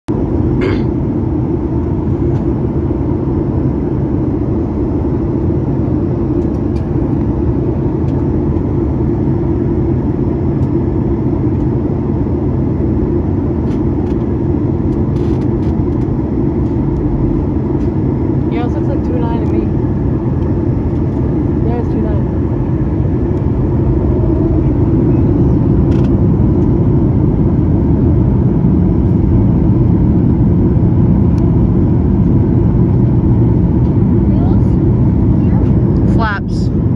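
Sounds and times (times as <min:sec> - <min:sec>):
airplane cabin rumble: 0:00.1 - 0:36.9.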